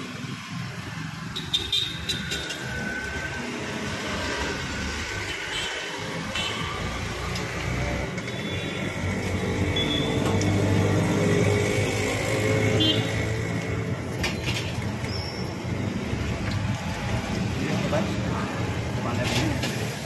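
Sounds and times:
street traffic: 0.0s - 20.0s
deep-frying in hot oil: 14.4s - 20.0s.

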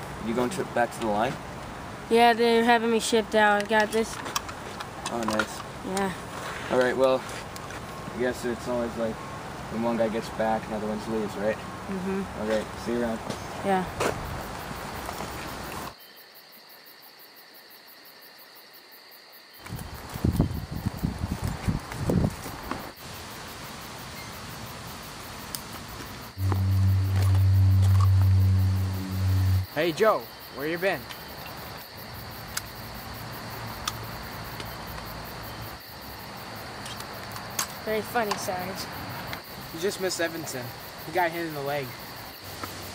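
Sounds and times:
steady outdoor hiss: 0.0s - 42.9s
insects chirping: 12.7s - 42.9s.

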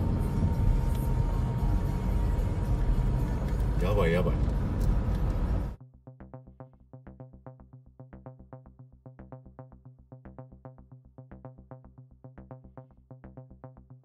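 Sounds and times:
steady low synth tone: 0.0s - 3.8s, 5.5s - 14.0s
synthesizer pulsing notes: 5.8s - 14.0s.

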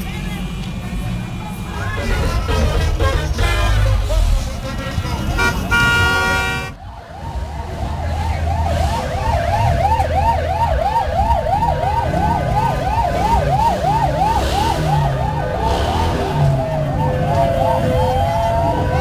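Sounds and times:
traffic rumble: 0.0s - 19.0s
electronic siren yelping: 7.0s - 19.0s.

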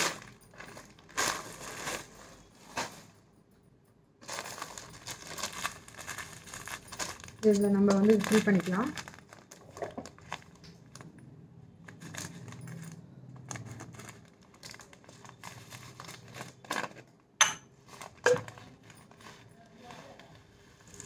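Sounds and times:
plastic packet crinkling: 0.0s - 2.9s, 4.2s - 11.1s, 11.9s - 17.1s
dry seeds clinking: 4.2s - 10.6s.

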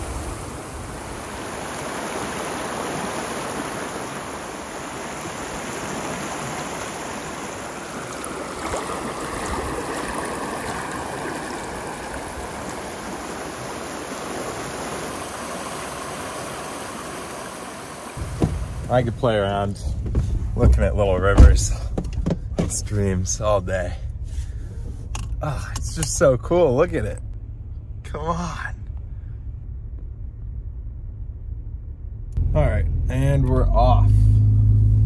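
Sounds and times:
creek rushing over rocks: 0.0s - 19.2s.

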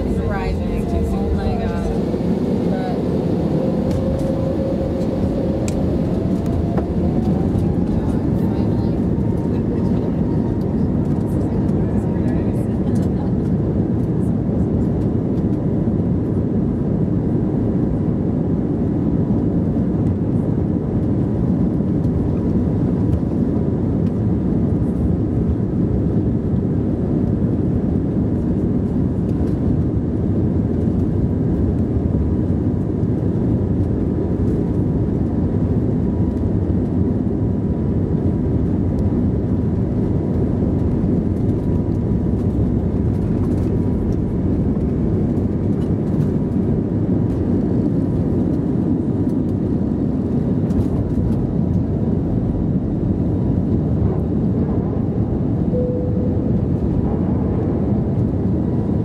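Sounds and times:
jet engine rumble in cabin: 0.0s - 59.0s
thin jet engine whine: 0.0s - 59.0s.

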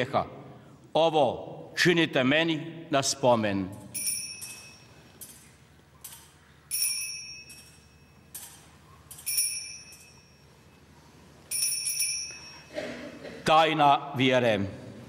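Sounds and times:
altar bells ringing: 3.9s - 5.4s, 6.7s - 8.4s, 9.1s - 12.9s
light bell clinks: 4.0s - 5.4s, 6.7s - 10.5s, 11.5s - 12.8s.

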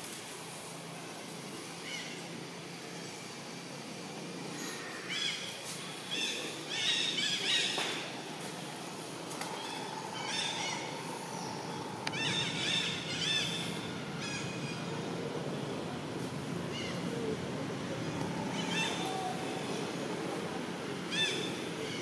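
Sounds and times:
faint steady whine: 0.0s - 22.0s.

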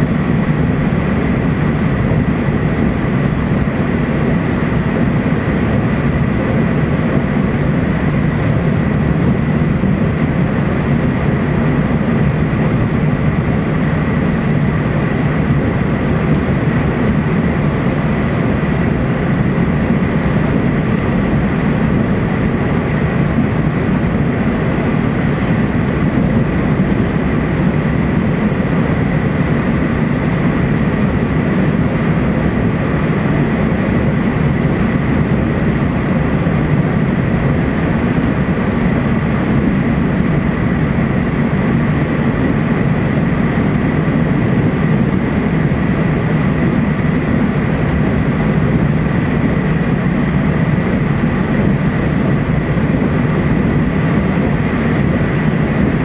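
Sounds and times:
train cabin rumble: 4.3s - 41.6s.

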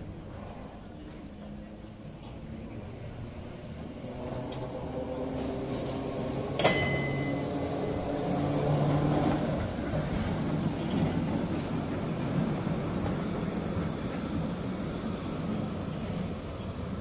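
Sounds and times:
sharp metallic clank: 6.6s - 7.4s.

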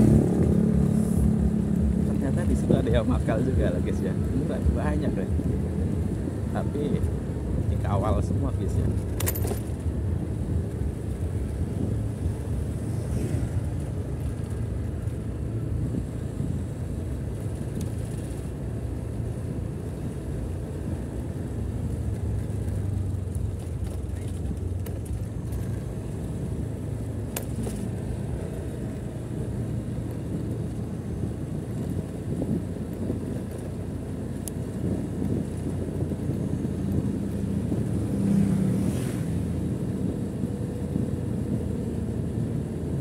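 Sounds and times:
road and wind noise: 0.0s - 43.0s.

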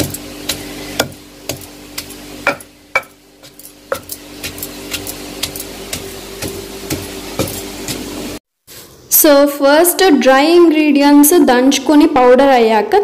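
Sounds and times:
pestle pounding in stone mortar: 0.0s - 8.3s.

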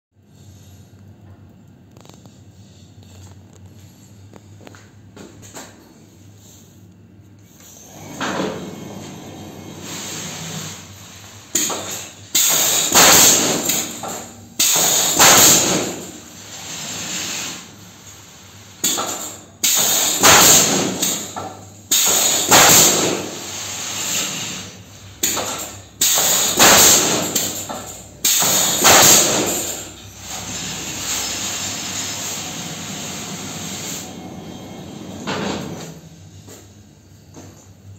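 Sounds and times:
steady mechanical noise: 0.2s - 37.9s
pneumatic nail guns firing: 11.6s - 16.2s, 18.8s - 24.6s, 25.2s - 31.0s.

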